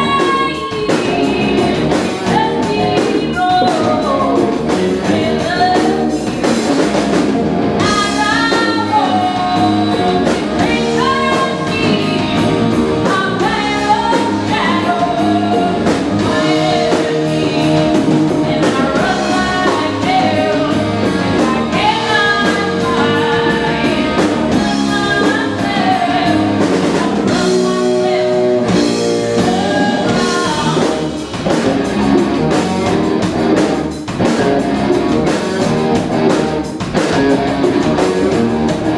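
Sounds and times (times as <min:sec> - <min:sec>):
woman singing lead: 0:00.0 - 0:06.7, 0:07.8 - 0:31.6
drum kit: 0:00.0 - 0:38.9
electric guitar: 0:00.0 - 0:38.9.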